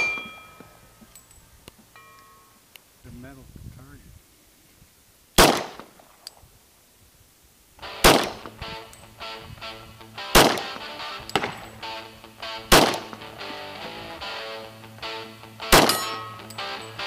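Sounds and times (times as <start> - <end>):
pistol shots: 5.4 - 6.0, 8.0 - 8.5, 10.3 - 11.7, 12.7 - 13.4, 15.7 - 16.4
background music sustained notes: 7.8 - 17.0.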